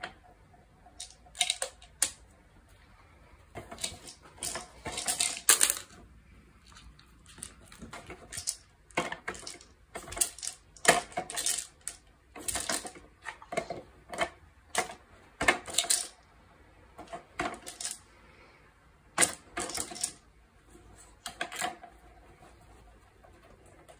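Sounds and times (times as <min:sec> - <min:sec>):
plastic cups clattering: 0:00.0 - 0:02.2, 0:03.4 - 0:16.2, 0:16.9 - 0:18.0, 0:19.1 - 0:20.3, 0:21.0 - 0:22.3.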